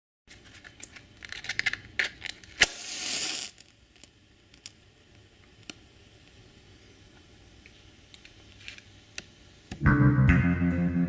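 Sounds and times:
match striking: 2.0 - 4.8
match head hissing: 2.6 - 3.7.

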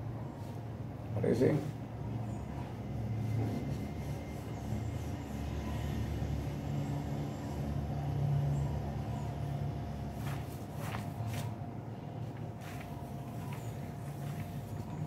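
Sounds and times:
background traffic rumble: 0.0 - 15.0
pencil scratching on paper: 3.2 - 6.8.

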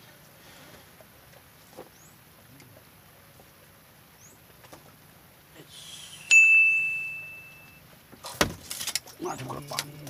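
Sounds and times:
bite alarm bell ding: 6.3 - 7.8.

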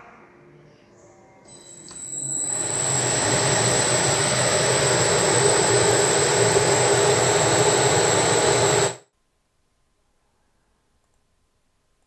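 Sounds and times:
machinery rushing with hum and whine: 1.9 - 9.0.

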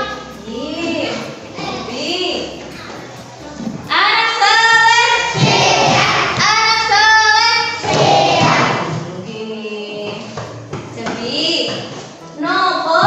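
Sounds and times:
children singing in unison: 3.5 - 9.0.

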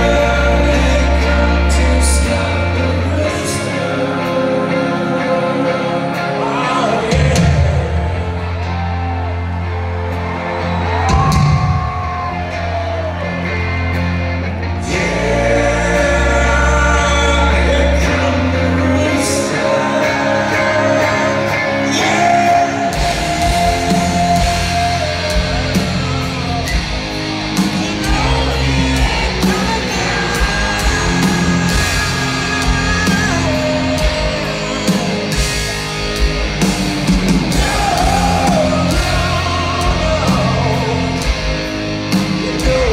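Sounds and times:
person singing: 0.0 - 9.2, 14.7 - 27.0, 27.6 - 36.3, 37.3 - 42.9
bass guitar: 0.0 - 42.9
distorted electric guitars: 0.0 - 42.9
drums: 0.0 - 42.9.

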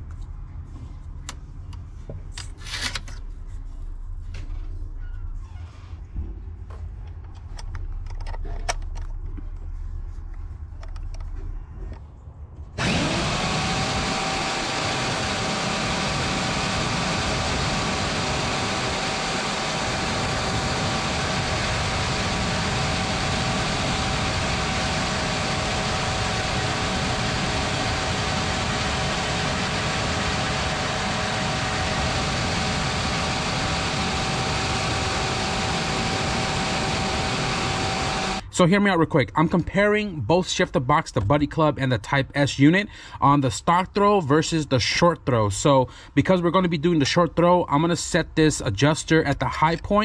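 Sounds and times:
band saw whining: 12.8 - 38.5.

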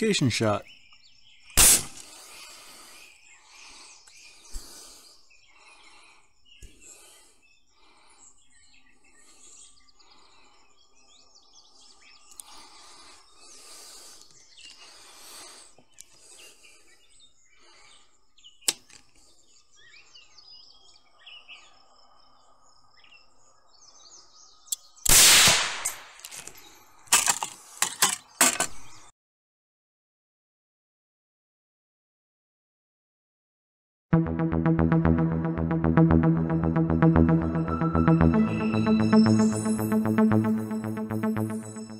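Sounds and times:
outdoor background noise: 0.1 - 29.1
loud rifle shot: 1.6 - 2.0, 25.1 - 25.9.

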